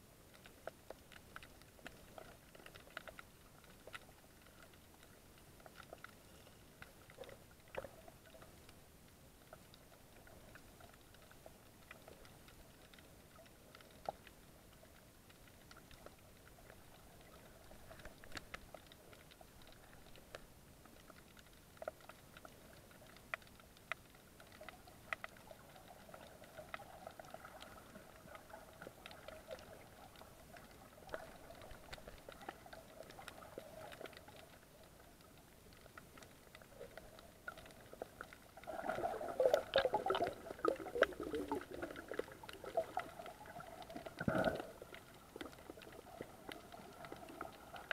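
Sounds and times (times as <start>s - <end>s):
faint steady hum: 0.0s - 47.9s
faint underwater hiss: 0.0s - 47.9s
bubbling: 24.0s - 47.9s.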